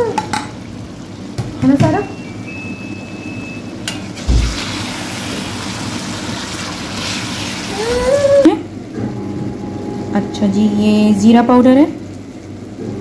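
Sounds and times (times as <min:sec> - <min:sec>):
meat sizzling in a wok: 0:04.0 - 0:08.2.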